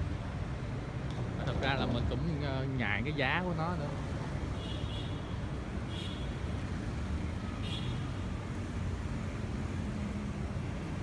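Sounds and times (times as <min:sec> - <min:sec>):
traffic passing slowly: 0:00.0 - 0:11.0.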